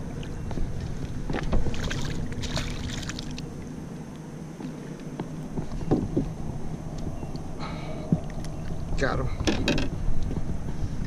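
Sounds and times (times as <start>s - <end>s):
knock on boat: 5.9s - 6.3s.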